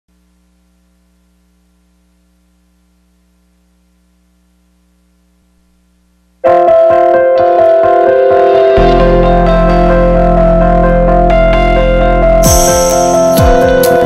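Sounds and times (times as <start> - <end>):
faint electrical hum: 0.1 - 6.5
piano music: 6.4 - 14.0.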